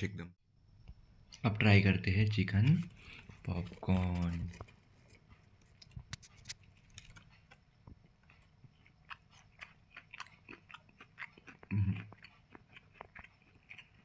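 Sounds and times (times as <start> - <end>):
chewing mouth clicks: 8.2 - 14.0
person humming: 11.7 - 12.0.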